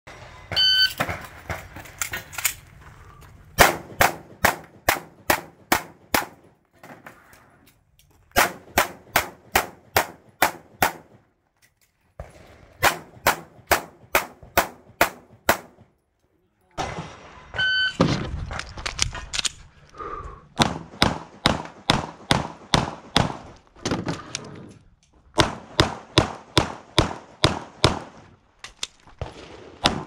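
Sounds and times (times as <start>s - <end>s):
pistol shots: 3.6s - 6.4s, 8.4s - 11.2s, 12.2s - 15.8s, 20.6s - 23.5s, 25.4s - 28.2s.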